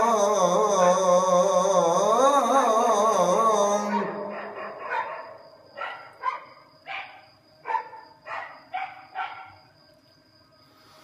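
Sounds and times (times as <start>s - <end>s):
dog barking: 3.9s - 9.6s.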